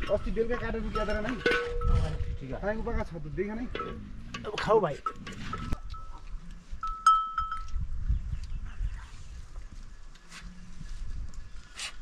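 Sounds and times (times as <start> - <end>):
livestock bell ringing: 0.0 - 2.3, 6.8 - 7.8.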